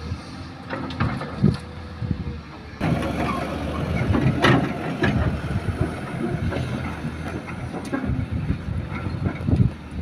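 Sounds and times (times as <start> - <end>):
diesel engine running: 0.0 - 10.0
excavator bucket clanks and knocks: 0.7 - 1.7, 2.8 - 9.7.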